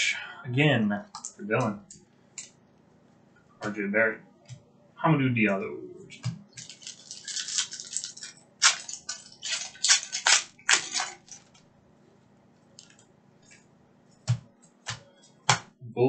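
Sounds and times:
foil wrapper tearing and crinkling: 0:06.6 - 0:11.6.

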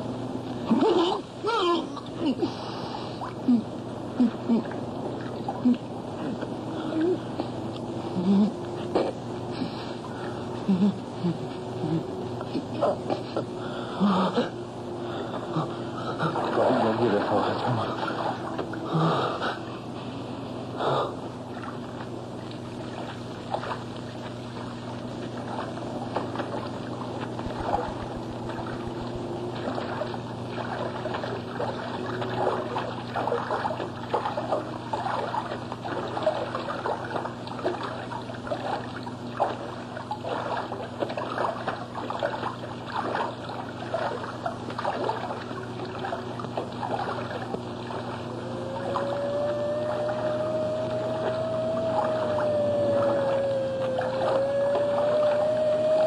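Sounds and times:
low hum: 0:00.0 - 0:56.0
water trickling and splashing: 0:16.0 - 0:18.9, 0:21.5 - 0:56.0.

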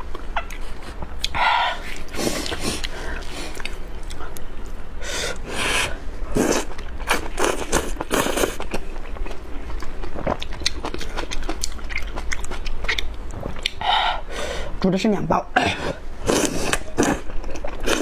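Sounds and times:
person slurping noodles: 0:05.5 - 0:06.7
chewing: 0:06.4 - 0:13.8, 0:16.3 - 0:18.0.

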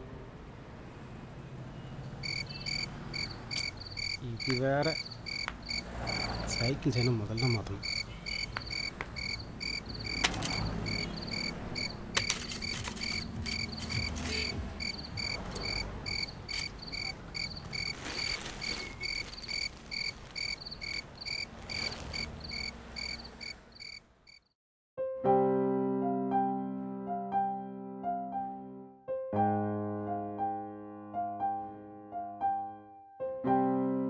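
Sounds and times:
cricket chirping: 0:02.2 - 0:24.5
sharp clicks: 0:10.0 - 0:10.7.

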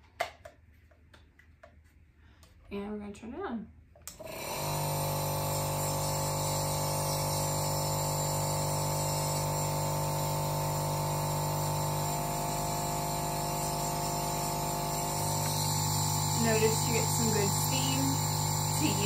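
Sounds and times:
air compressor buzzing hum: 0:04.2 - 0:19.0.

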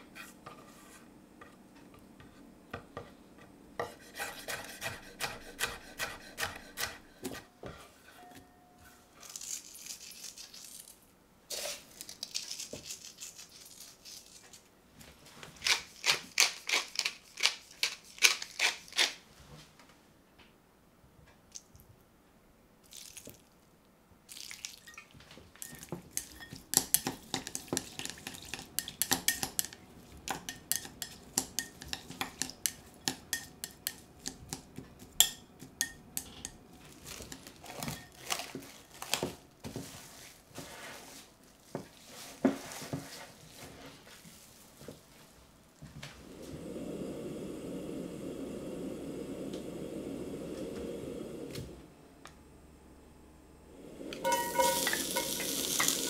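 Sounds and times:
pepper mill grinding: 0:09.2 - 0:14.6, 0:15.6 - 0:19.2, 0:54.2 - 0:56.0
chopsticks clinking in glass bowl: 0:54.2 - 0:56.0.

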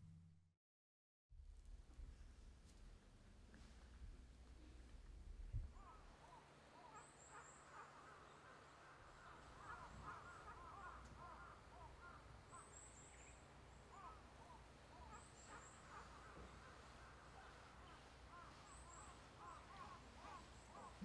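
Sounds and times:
birds calling: 0:05.7 - 0:21.0.

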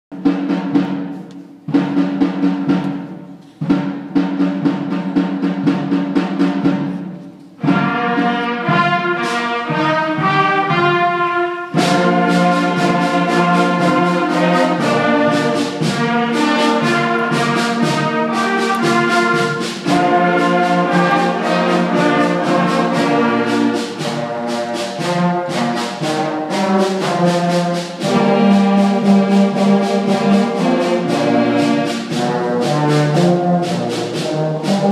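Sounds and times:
school concert band playing: 0:00.1 - 0:34.9
low brass chords: 0:07.6 - 0:34.9.

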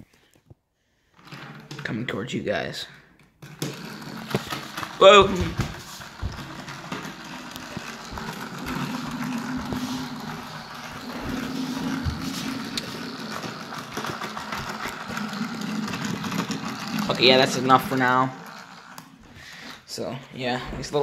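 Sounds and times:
toy gear motor whirring: 0:03.5 - 0:19.4.

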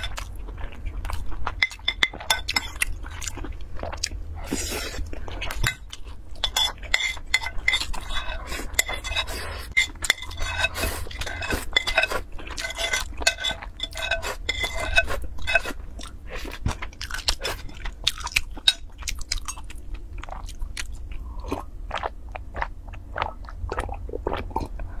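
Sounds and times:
spoon scraping ceramic bowl: 0:01.6 - 0:02.8, 0:05.5 - 0:15.8.

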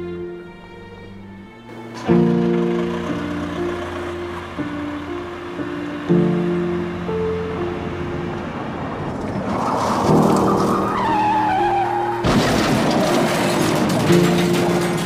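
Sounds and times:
sad background music: 0:00.0 - 0:15.0
car tyres screeching: 0:00.6 - 0:15.0
crash of impact: 0:12.2 - 0:15.0.

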